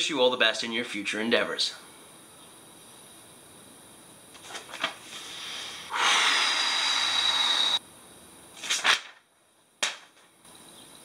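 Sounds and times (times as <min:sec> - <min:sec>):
long loud exhale through lips: 0:05.1 - 0:07.8
man breathing in: 0:05.1 - 0:07.8.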